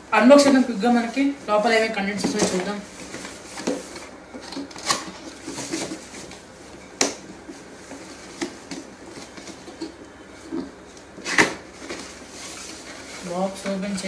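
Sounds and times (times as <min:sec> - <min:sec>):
cardboard rubbing and scraping: 0:10.4 - 0:13.8.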